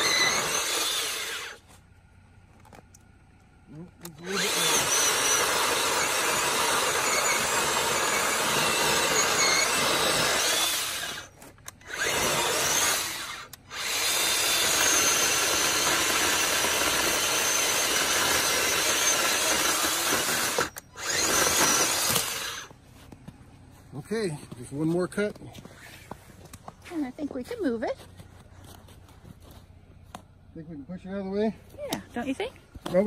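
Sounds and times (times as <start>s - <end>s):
chainsaw cutting wood: 0.0s - 1.7s, 4.0s - 22.8s.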